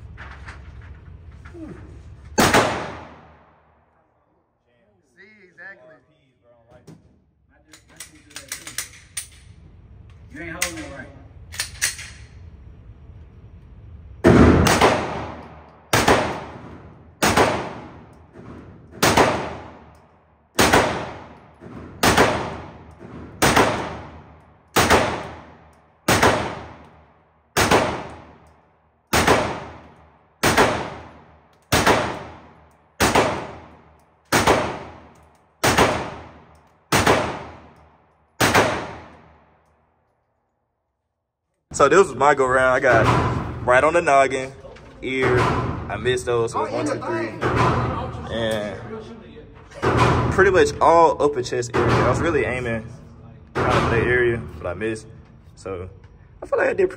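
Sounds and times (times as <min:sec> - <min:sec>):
gunshots: 0:02.4 - 0:03.6, 0:14.2 - 0:19.9, 0:20.6 - 0:28.4, 0:29.1 - 0:37.8, 0:38.4 - 0:39.5, 0:53.5 - 0:54.2.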